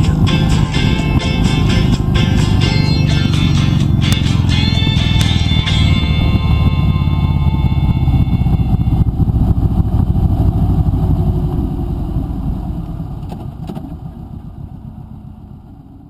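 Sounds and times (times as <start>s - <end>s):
motorcycle engine rumbling: 0.0s - 16.0s.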